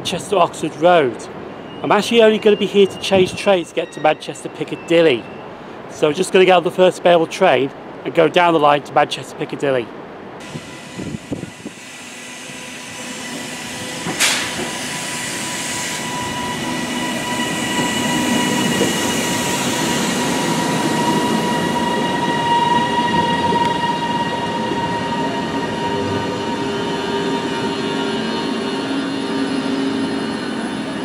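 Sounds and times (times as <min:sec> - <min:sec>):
train whine: 0:10.4 - 0:31.0.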